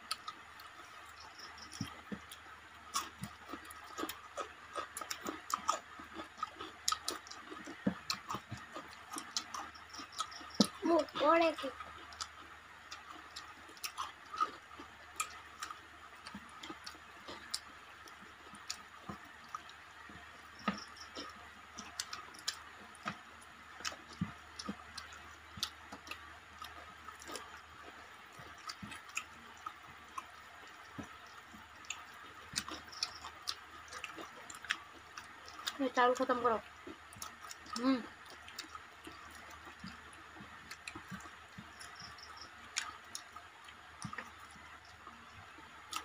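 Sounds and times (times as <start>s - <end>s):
faint steady hum: 0.0s - 46.0s
people chewing food: 0.0s - 46.0s.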